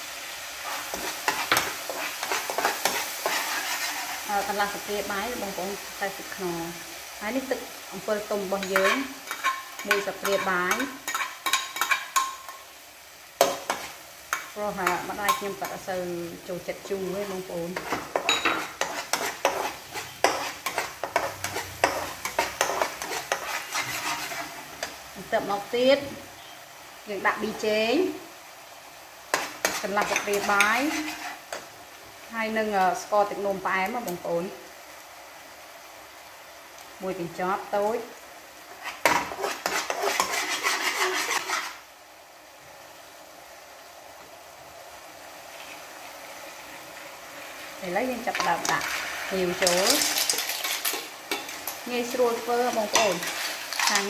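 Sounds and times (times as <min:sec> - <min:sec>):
faint steady hiss: 0:00.0 - 0:54.0
sauce sizzling: 0:00.0 - 0:54.0
spatula scraping a frying pan: 0:00.6 - 0:04.5, 0:08.3 - 0:12.6, 0:17.7 - 0:25.0, 0:29.3 - 0:31.7, 0:38.7 - 0:41.8, 0:48.1 - 0:54.0.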